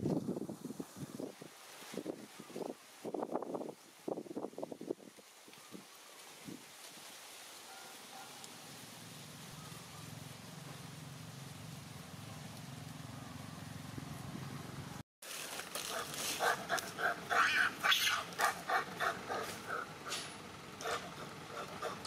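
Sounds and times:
macaque short pitched cries: 16.4 - 18.8.

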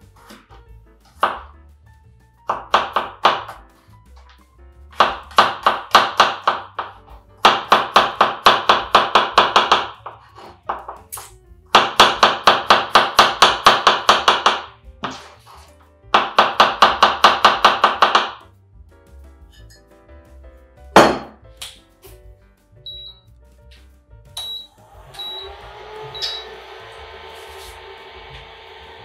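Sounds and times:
knife chopping on cutting board: 0.1 - 1.6, 2.5 - 15.6, 21.0 - 21.8.

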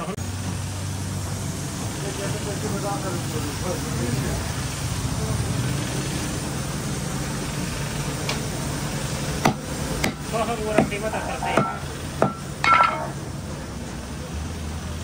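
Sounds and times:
steady background hum: 0.0 - 14.3
sharp metallic knocks and clanks: 9.4 - 13.2.

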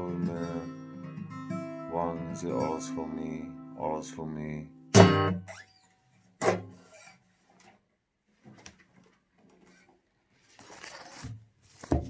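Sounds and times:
acoustic guitar strum: 0.0 - 6.8.

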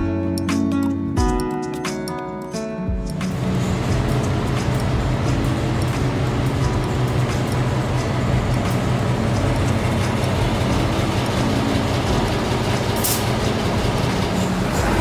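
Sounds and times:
diesel locomotive idling: 3.3 - 15.0.

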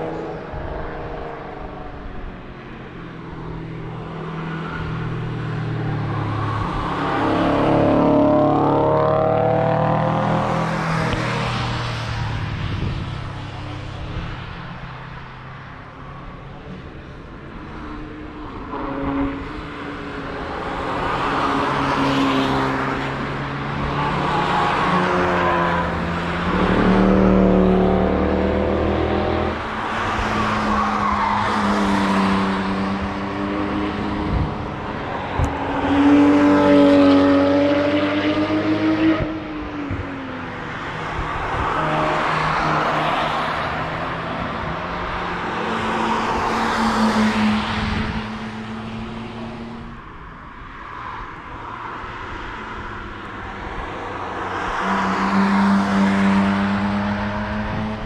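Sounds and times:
race cars passing: 0.0 - 58.0.

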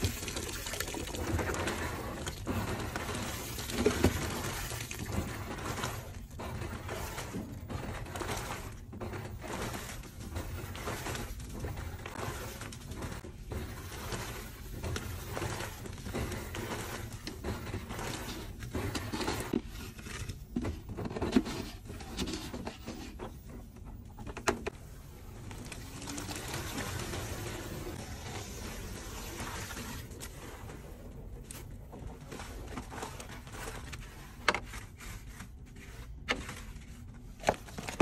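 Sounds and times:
water pouring and splashing: 0.0 - 6.2, 25.5 - 30.8.

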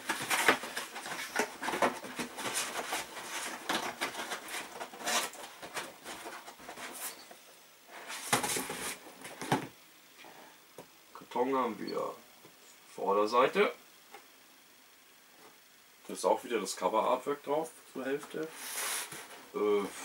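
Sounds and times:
cardboard box scraping: 0.0 - 7.2.

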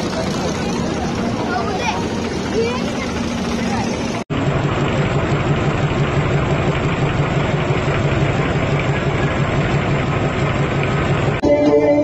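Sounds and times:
pulsing engine rumble: 0.0 - 12.0
music: 11.4 - 12.0.

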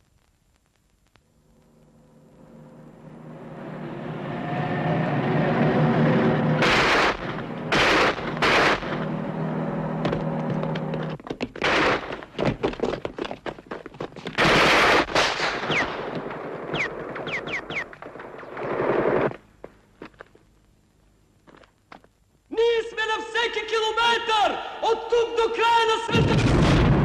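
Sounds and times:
steady drone: 1.2 - 11.2
machine-gun fire: 6.6 - 9.2, 11.6 - 12.4, 14.4 - 19.3.

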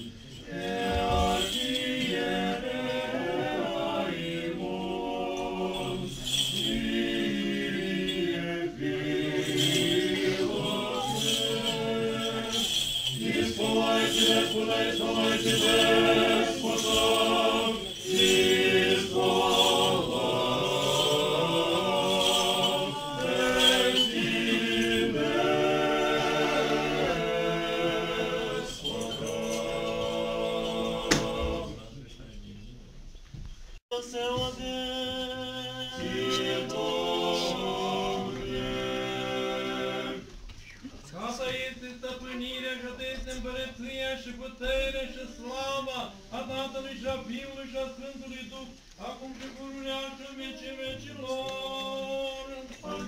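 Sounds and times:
choir singing unaccompanied: 0.0 - 31.9, 34.0 - 40.4, 49.0 - 53.0.

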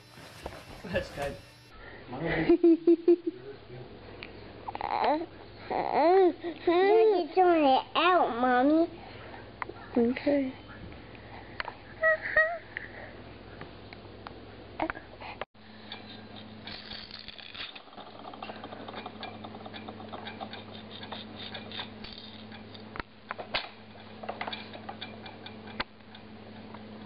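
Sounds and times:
plastic toys clicking and clattering: 16.7 - 22.7.

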